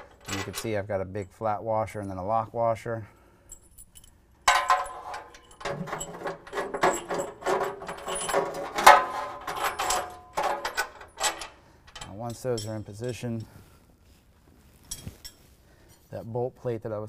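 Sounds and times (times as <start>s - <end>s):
metal bolts and washers clinking: 0.0s - 1.4s, 3.5s - 13.6s, 14.9s - 16.1s.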